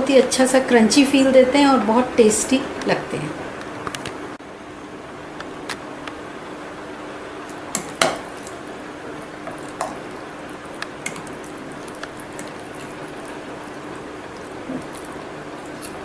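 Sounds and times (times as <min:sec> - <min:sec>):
spoon stirring thick oats: 0:09.2 - 0:16.0.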